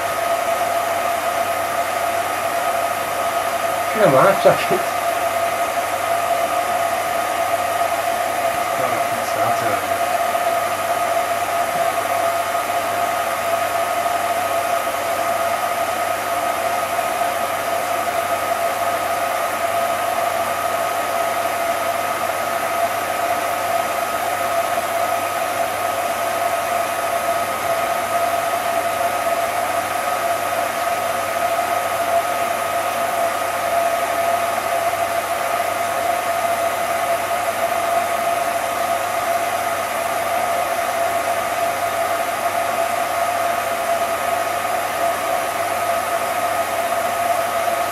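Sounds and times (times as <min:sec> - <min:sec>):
film projector whirring: 0:00.0 - 0:47.9.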